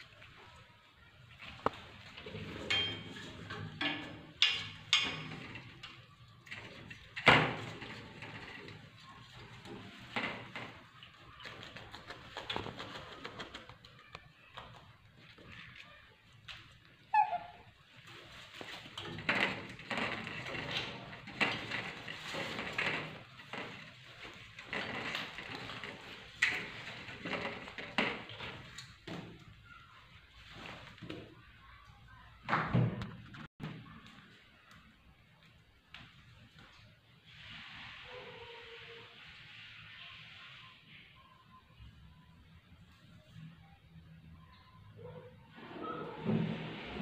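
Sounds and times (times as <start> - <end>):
knocks and rattles on metal grille: 18.8 - 29.5.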